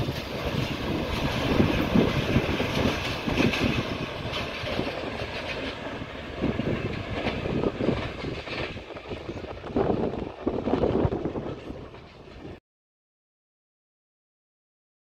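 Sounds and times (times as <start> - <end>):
train wheels clattering over rails: 0.0 - 12.6.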